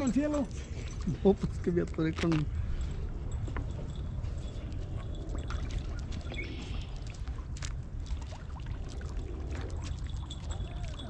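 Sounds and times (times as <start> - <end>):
steady low rumble: 0.0 - 11.0
water dripping: 5.0 - 11.0.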